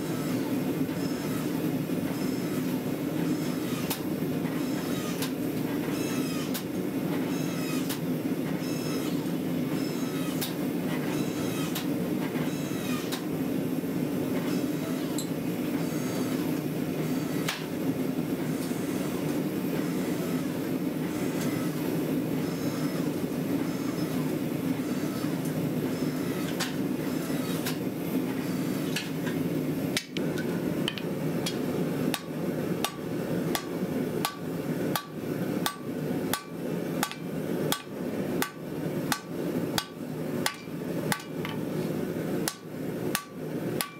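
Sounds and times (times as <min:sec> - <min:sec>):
power hammer pounding steel: 0:32.1 - 0:41.4.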